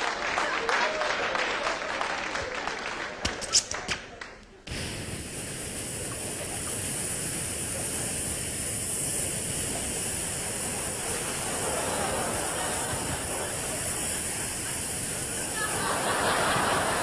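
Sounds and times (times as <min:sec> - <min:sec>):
steady rushing noise: 0:04.7 - 0:17.0.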